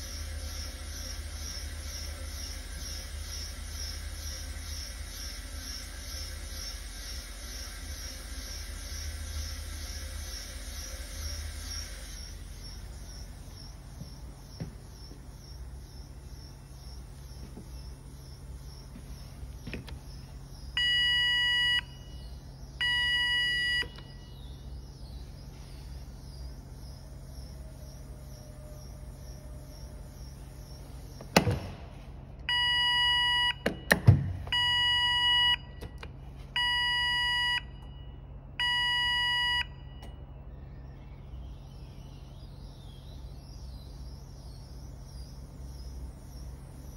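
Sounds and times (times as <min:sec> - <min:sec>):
alarm buzzer beeping: 0:20.8 - 0:24.2, 0:32.5 - 0:35.8, 0:36.6 - 0:40.1.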